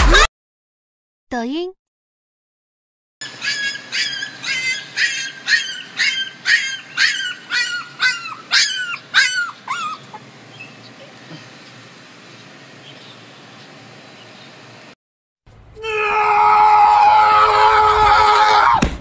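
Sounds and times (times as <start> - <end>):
puppy yelping: 3.2 - 11.1.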